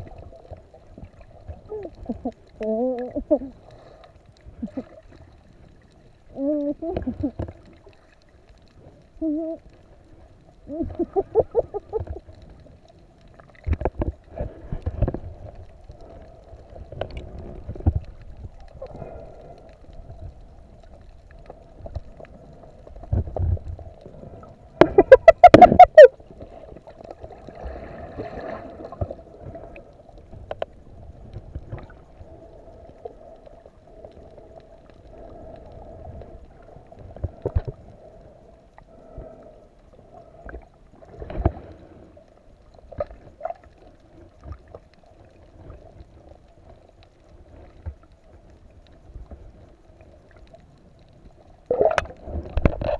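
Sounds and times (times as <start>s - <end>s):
faint steady hum: 0.0s - 52.9s
rushing water and bubbles: 0.0s - 52.9s
water thumps and swishes from fins: 13.3s - 19.2s, 21.5s - 32.2s, 40.3s - 41.9s, 51.6s - 52.9s.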